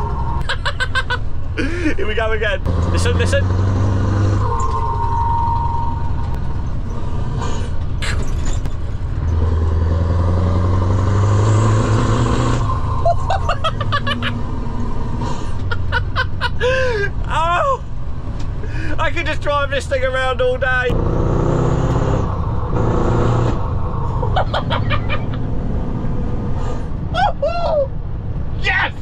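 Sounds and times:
man laughing and whooping: 0:00.0 - 0:02.2, 0:13.0 - 0:14.7, 0:15.4 - 0:17.9, 0:24.1 - 0:25.5, 0:27.1 - 0:28.0
lorry engine accelerating: 0:00.0 - 0:19.0, 0:20.7 - 0:27.1.

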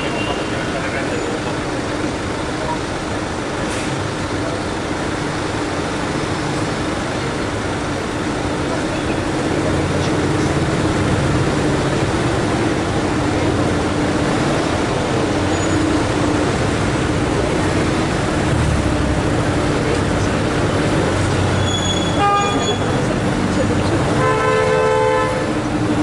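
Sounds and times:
vehicle engines idling: 0:00.0 - 0:26.0.

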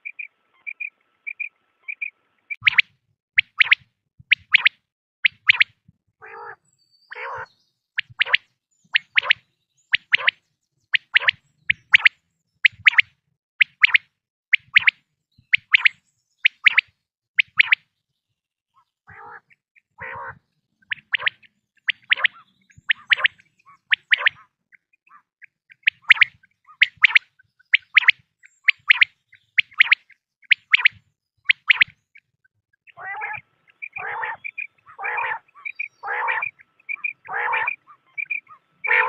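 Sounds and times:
quail calling: 0:00.0 - 0:03.8, 0:05.3 - 0:08.4, 0:09.0 - 0:09.4, 0:18.8 - 0:32.0, 0:32.9 - 0:39.0.

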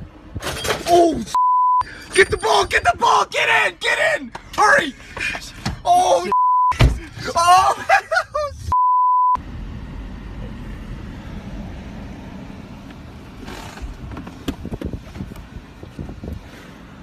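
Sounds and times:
censor bleep: 0:01.4 - 0:01.9, 0:06.3 - 0:06.8, 0:08.7 - 0:09.4
car driving rumble from inside: 0:06.8 - 0:17.0.

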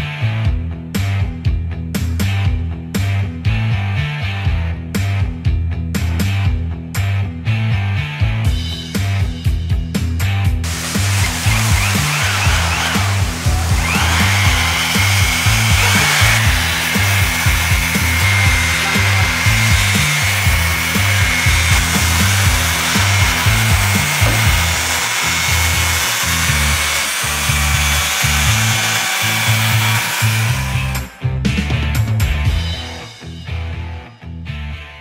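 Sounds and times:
electric sander running on wood: 0:10.6 - 0:31.1.

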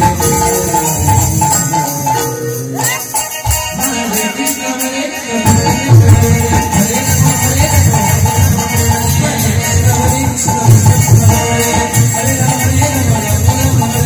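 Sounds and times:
hand drum playing: 0:00.0 - 0:04.4
hand cymbals clashing: 0:00.0 - 0:14.0.

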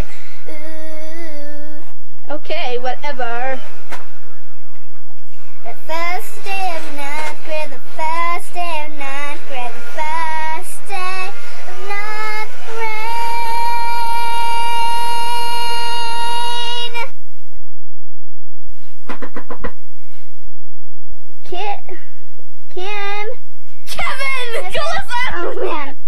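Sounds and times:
girl singing: 0:00.0 - 0:02.0, 0:05.6 - 0:17.2, 0:21.4 - 0:22.0, 0:22.7 - 0:26.0.

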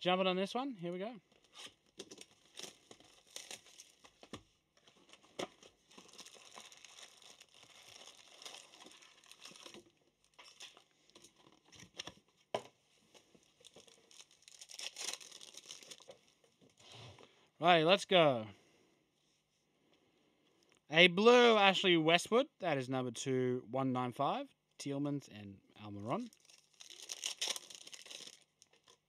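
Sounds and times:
foil packs rustling: 0:01.3 - 0:12.2, 0:13.0 - 0:17.0, 0:26.3 - 0:29.0
plastic shrink wrap crinkling: 0:01.3 - 0:12.4, 0:13.0 - 0:16.9, 0:26.1 - 0:29.0.

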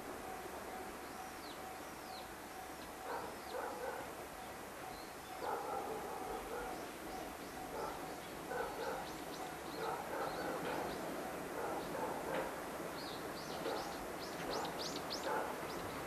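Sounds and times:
dog barking: 0:03.0 - 0:04.2, 0:05.3 - 0:06.9, 0:07.6 - 0:12.6, 0:13.6 - 0:15.6.

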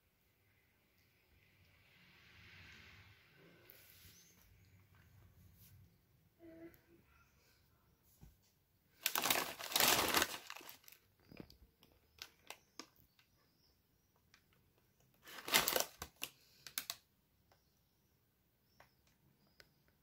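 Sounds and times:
plastic snack bag crinkling: 0:09.0 - 0:13.2, 0:15.1 - 0:17.0.

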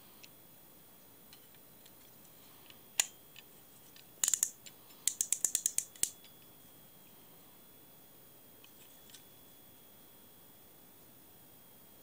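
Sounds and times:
fly reel ratchet clicks: 0:04.2 - 0:06.2.

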